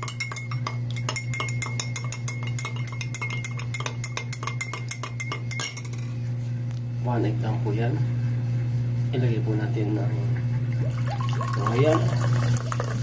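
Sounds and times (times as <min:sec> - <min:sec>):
spoon clinking against glass: 0:00.0 - 0:06.1
steady low hum: 0:00.0 - 0:13.0.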